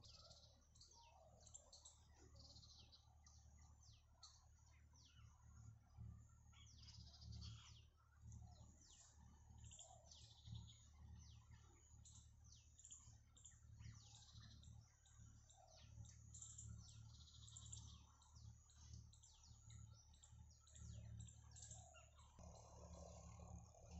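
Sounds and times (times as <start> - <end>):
birds chirping and trilling: 0.0 - 23.9
low rumble: 22.4 - 23.9.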